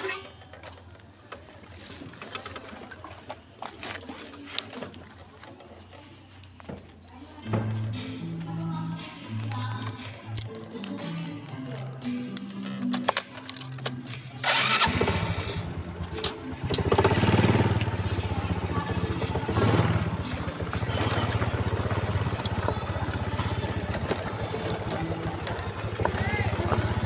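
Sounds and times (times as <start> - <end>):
small engine pulsing: 14.4 - 27.0.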